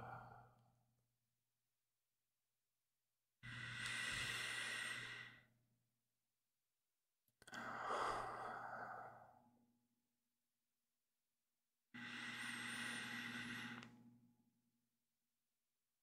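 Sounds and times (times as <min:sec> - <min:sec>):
man breathing deeply: 0:12.1 - 0:13.8.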